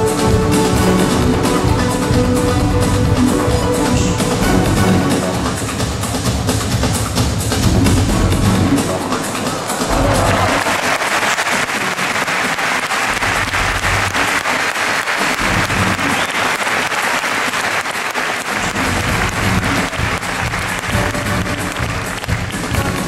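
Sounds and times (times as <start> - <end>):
music: 0.0 - 23.0
audience applauding: 8.9 - 23.0.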